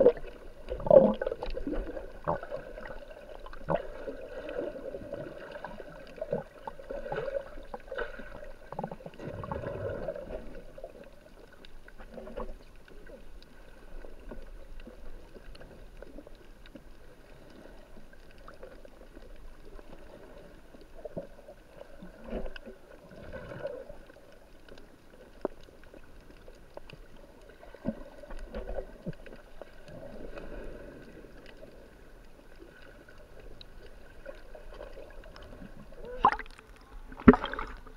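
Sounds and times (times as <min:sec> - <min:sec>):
underwater sloshing and gurgling: 0:00.0 - 0:37.9
knocks and splashes: 0:37.2 - 0:37.8.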